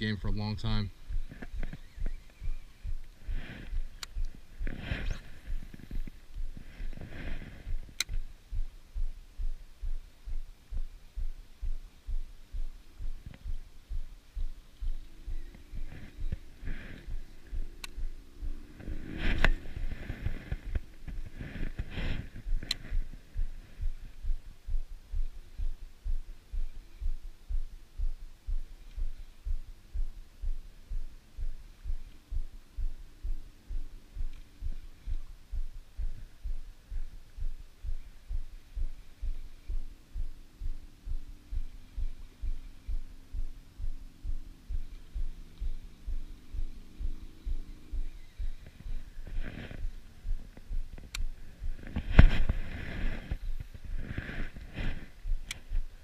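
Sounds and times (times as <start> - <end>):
sharp knocks and rustles: 48.6 - 55.9.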